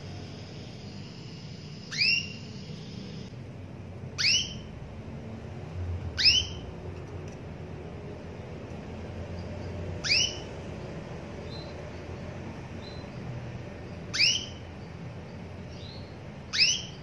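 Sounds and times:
canary upward whistle calls: 0:01.7 - 0:03.3, 0:04.2 - 0:04.7, 0:06.2 - 0:06.6, 0:10.0 - 0:10.5, 0:14.1 - 0:14.6, 0:16.5 - 0:17.0.

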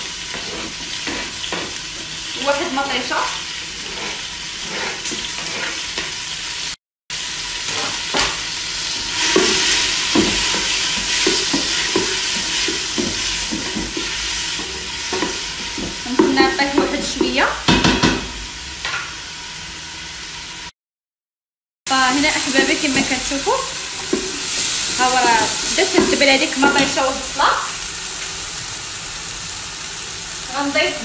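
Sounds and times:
wooden spoon scraping a pot: 0:00.0 - 0:02.2, 0:03.7 - 0:06.2, 0:08.9 - 0:17.4, 0:22.3 - 0:27.3
onion and tomato sizzling in oil: 0:00.0 - 0:20.7, 0:21.9 - 0:31.0.

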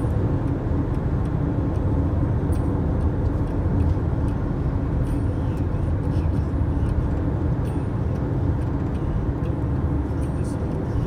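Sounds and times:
road and wind noise inside car: 0:00.0 - 0:11.0
faint light ticks: 0:00.4 - 0:01.9, 0:02.5 - 0:04.4, 0:05.0 - 0:09.6.

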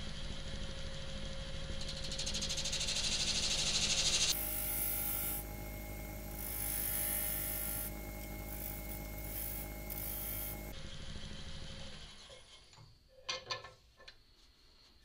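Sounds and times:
wood lathe humming: 0:04.3 - 0:10.7.

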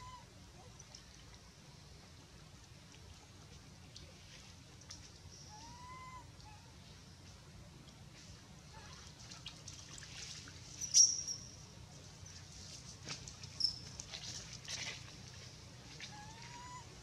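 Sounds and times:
infant monkey squeaks: 0:10.8 - 0:11.5.

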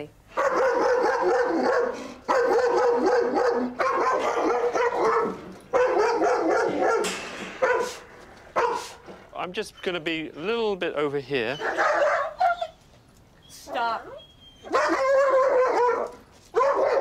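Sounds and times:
dog barking frantically: 0:00.3 - 0:09.0, 0:11.6 - 0:12.7, 0:14.6 - 0:17.0.

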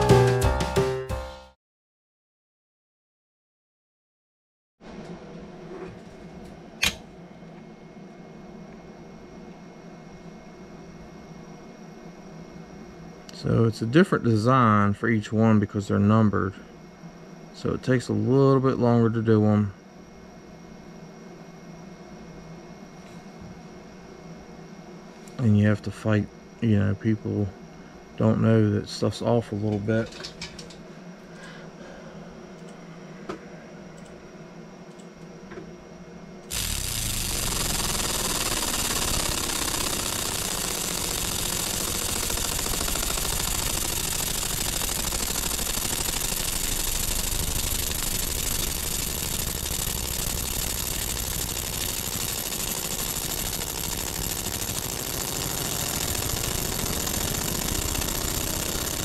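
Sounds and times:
laser engraver hissing: 0:36.5 - 0:59.0.

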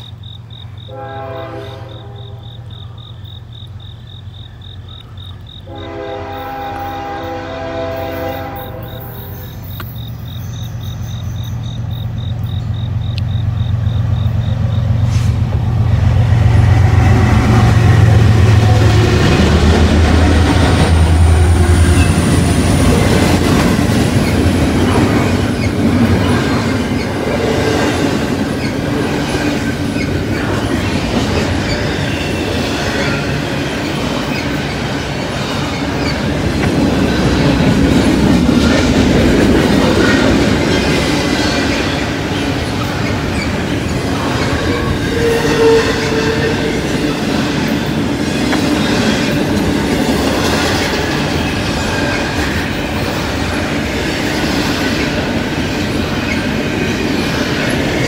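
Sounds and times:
diesel locomotive engines humming: 0:00.0 - 0:58.0
wheels rolling on rails: 0:15.5 - 0:58.0
wheel squeal: 0:42.8 - 0:49.2.

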